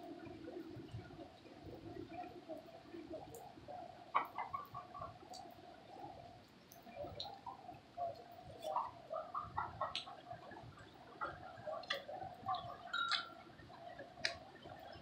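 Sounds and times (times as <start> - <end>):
light rain dripping: 0.0 - 15.0.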